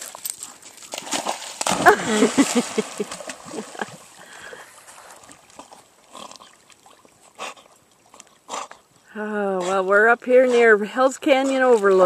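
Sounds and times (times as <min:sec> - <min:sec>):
dog splashing in water: 0:00.7 - 0:04.2.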